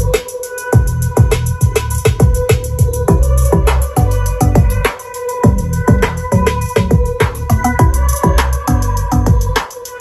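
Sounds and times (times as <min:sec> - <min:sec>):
heavy kick drum: 0:00.0 - 0:09.6
electronic dance music: 0:00.0 - 0:10.0
steady synth tones: 0:02.2 - 0:09.6.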